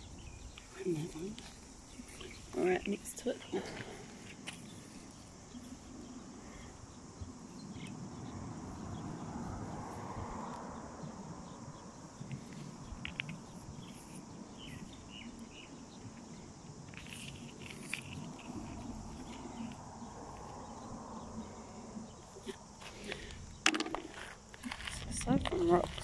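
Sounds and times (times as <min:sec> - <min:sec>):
insect chorus: 0:00.0 - 0:26.0
rocks clicking in hand: 0:12.3 - 0:13.5, 0:23.1 - 0:26.0.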